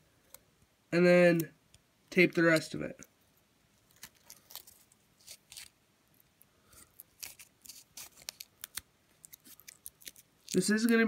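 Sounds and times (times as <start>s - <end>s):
foil tape crinkling: 3.8s - 5.8s, 6.7s - 11.0s.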